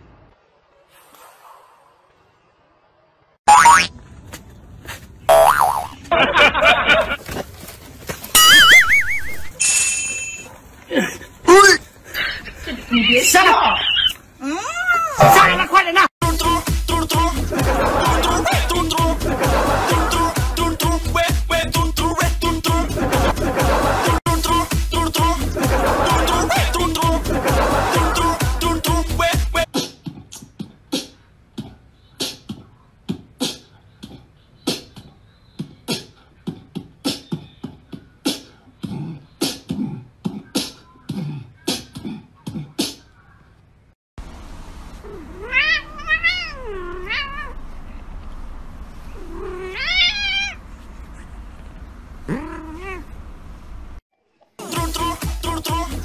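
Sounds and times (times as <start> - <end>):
cat meowing: 45.1 - 47.6, 49.2 - 50.6.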